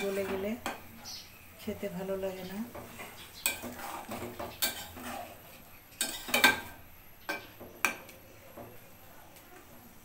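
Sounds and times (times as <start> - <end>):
metal spatula clinking in pan: 4.6 - 5.2.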